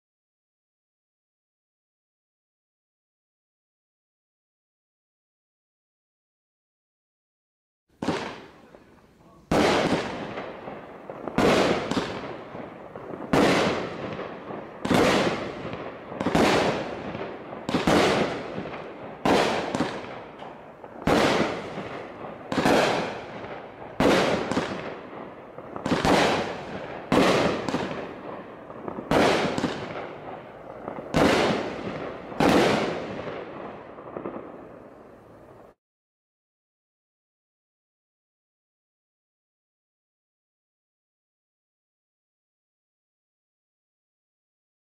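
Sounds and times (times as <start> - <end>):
firework shots firing: 8.0 - 35.8.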